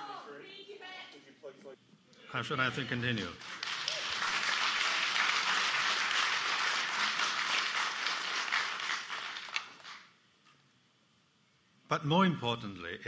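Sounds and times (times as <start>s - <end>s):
audience applauding: 3.3s - 10.1s.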